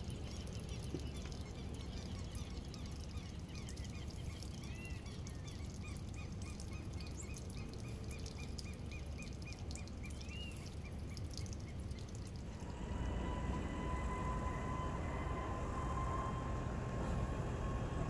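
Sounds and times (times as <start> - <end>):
bird chirping: 0.0 - 12.7.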